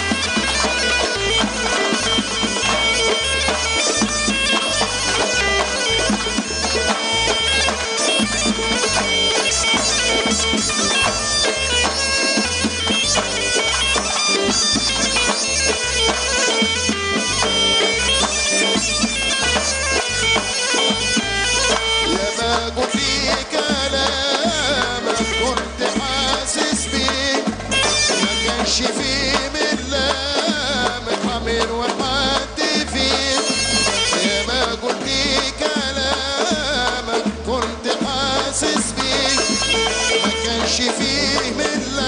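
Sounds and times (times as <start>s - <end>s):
bagpipe folk melody: 0.0s - 42.0s
frame drum beat: 0.0s - 42.0s.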